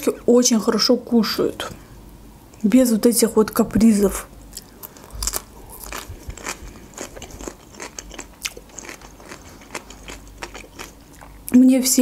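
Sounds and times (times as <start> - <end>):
chewing crisp cucumber: 4.6 - 11.6.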